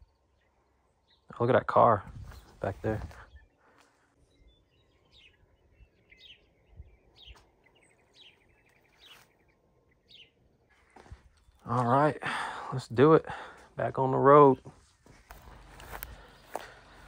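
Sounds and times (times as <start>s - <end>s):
faint bird chirps: 0.0s - 1.4s, 2.2s - 11.6s.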